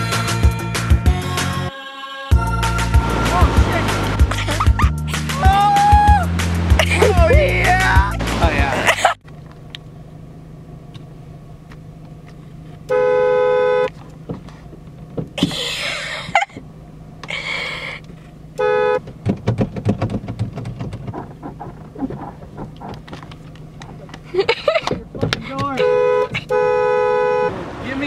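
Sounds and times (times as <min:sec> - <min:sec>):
car horn honking: 0:02.8 - 0:04.4, 0:12.8 - 0:14.0, 0:18.5 - 0:19.1, 0:25.5 - 0:28.0.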